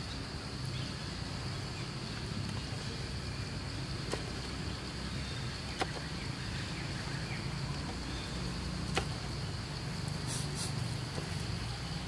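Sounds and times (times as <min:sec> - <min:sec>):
high hiss: 0:06.3 - 0:12.0.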